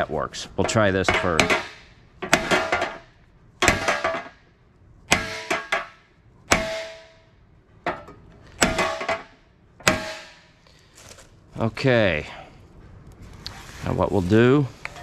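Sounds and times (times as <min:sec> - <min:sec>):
hammer clanging on steel: 0:00.6 - 0:04.4, 0:05.1 - 0:07.3, 0:07.9 - 0:10.6.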